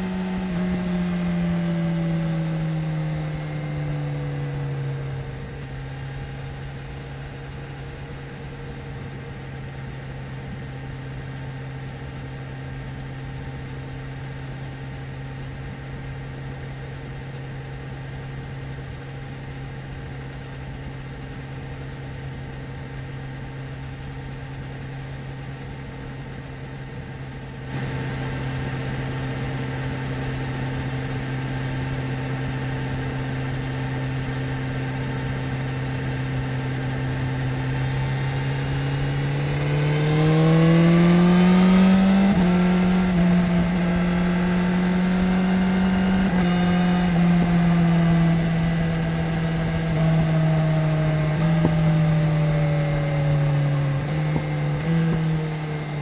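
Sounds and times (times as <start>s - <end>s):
motorcycle engine revving: 0.0s - 8.0s, 27.5s - 56.0s.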